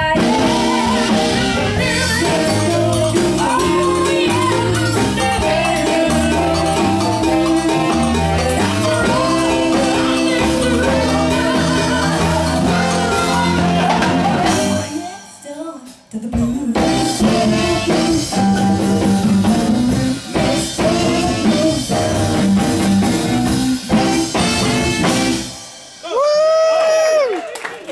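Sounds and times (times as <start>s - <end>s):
live blues band playing: 0.0s - 15.4s, 16.2s - 26.3s
person singing: 0.0s - 19.7s, 20.3s - 22.8s.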